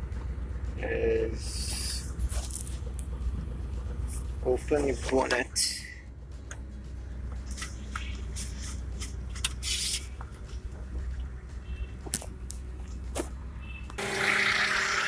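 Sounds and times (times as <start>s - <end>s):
steady low hum: 0.0s - 14.3s
loud hissing noise: 1.4s - 2.2s.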